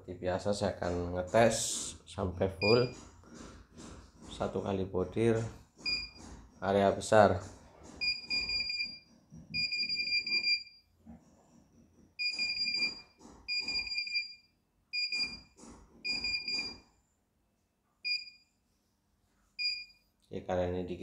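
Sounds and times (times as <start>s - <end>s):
rapid high beeps: 5.9s - 6.2s, 9.6s - 10.8s, 16.1s - 16.8s.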